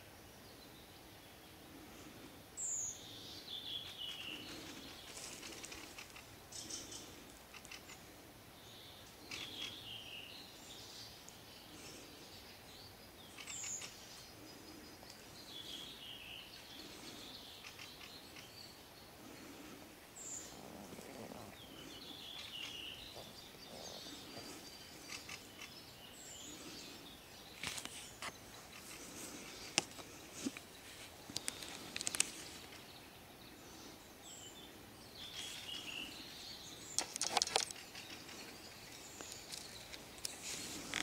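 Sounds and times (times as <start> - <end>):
songbirds singing: 0.0 - 41.0
steady outdoor hiss: 0.0 - 41.0
sharp clicks and snaps: 31.3 - 32.4, 36.9 - 38.2.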